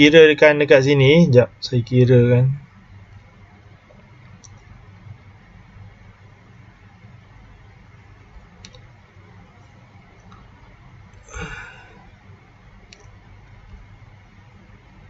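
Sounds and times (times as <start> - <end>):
low steady hum: 0.0 - 15.0
computer mouse clicks: 3.9 - 4.7, 8.6 - 8.9, 12.9 - 13.8
short breath: 11.3 - 12.1.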